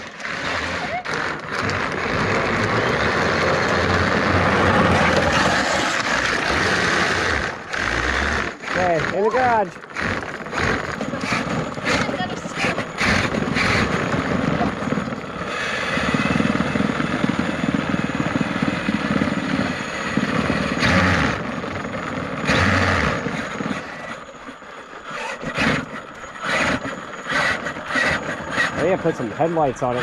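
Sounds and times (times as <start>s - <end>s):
tyre noise on concrete: 0.0s - 17.8s
electric toy car motor whir: 0.0s - 30.0s.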